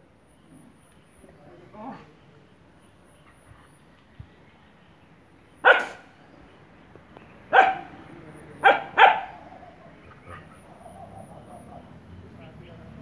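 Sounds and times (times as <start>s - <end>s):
dog barking: 5.6s - 6.1s, 7.5s - 7.9s, 8.6s - 9.4s.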